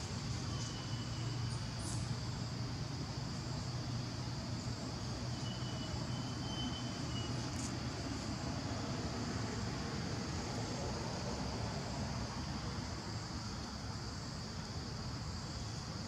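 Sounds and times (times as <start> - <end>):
insect chorus: 0.0 - 16.0
faint thin whistle: 5.4 - 7.4.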